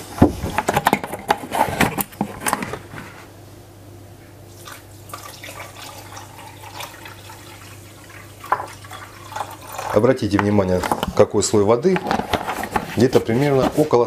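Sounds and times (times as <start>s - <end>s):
water pouring into pot: 4.5s - 10.2s.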